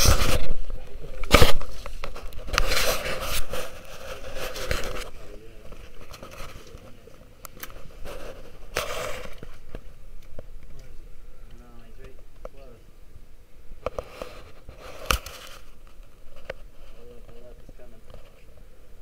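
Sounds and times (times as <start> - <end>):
fingers rubbing on camera: 0.0 - 0.6, 1.2 - 7.0, 7.6 - 9.8, 13.9 - 18.4
rustling: 0.0 - 12.8, 13.6 - 18.8.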